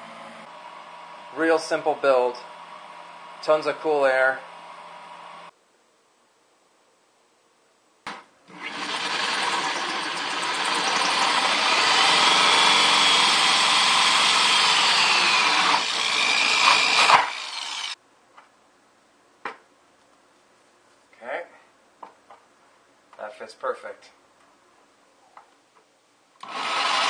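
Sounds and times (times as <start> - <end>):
electric drill hole saw cutting plastic: 8.5 - 18.0, 26.4 - 27.0
drill trigger clicks: 26.4 - 27.0.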